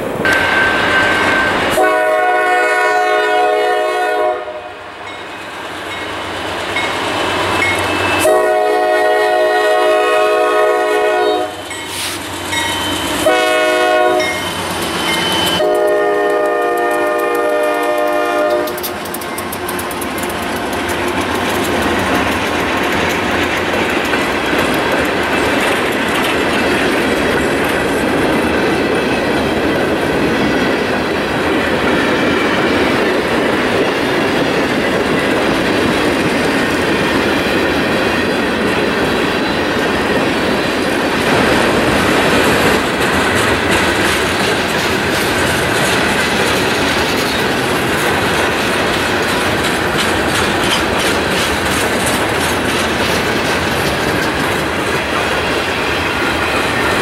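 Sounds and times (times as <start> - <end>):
locomotive air horn: 0.3 - 4.9, 8.2 - 12.2, 13.2 - 14.4, 15.5 - 18.9.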